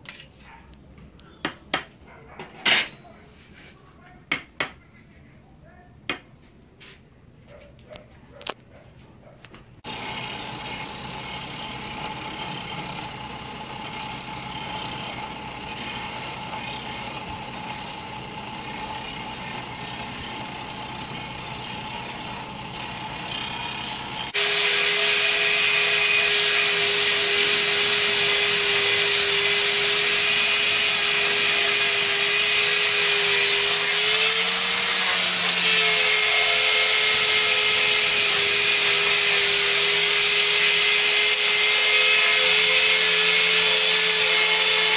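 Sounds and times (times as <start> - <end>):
blade scraping on grinding wheel: 0.0 - 0.6, 9.8 - 44.9
angle grinder whine: 9.8 - 44.9
grinding wheel hum: 9.8 - 44.9.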